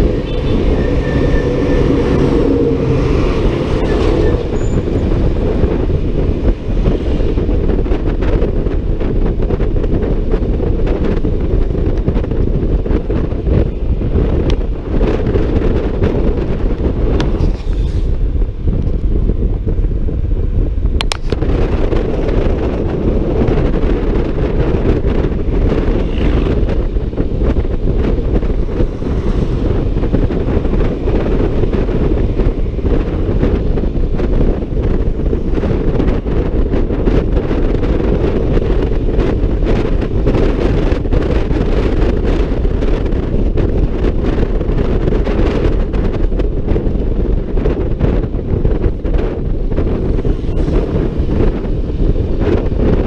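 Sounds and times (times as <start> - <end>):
wind buffeting microphone: 0.0 - 53.0.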